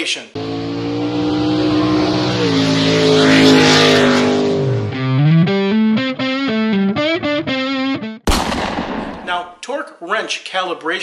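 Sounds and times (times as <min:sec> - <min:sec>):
car burnout sound effect: 0:00.4 - 0:05.6
choppy electric guitar riff: 0:01.3 - 0:08.3.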